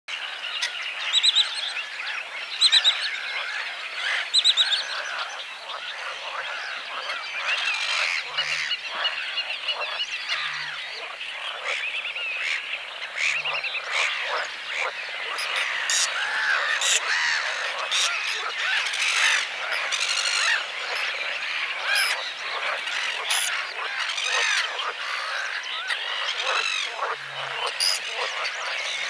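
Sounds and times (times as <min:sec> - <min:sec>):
frogs calling: 0:00.2 - 0:29.0
loud rapid frog trills: 0:02.8 - 0:29.0.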